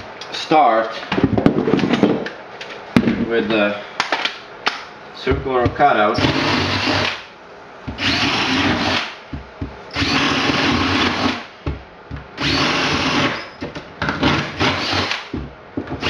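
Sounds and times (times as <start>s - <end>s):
cordless drill boring wood: 6.2s - 7.2s, 8.0s - 9.2s, 9.9s - 11.4s, 12.4s - 13.5s, 14.2s - 15.3s.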